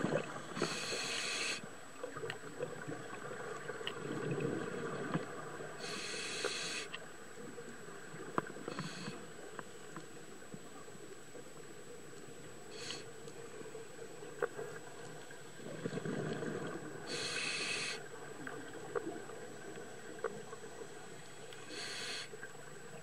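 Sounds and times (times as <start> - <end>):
regulator hissing inhalations: 0.6 - 1.6, 5.8 - 7.0, 8.7 - 9.2, 12.7 - 13.1, 17.1 - 18.1, 21.6 - 22.4
faint clicks: 12.1 - 13.4.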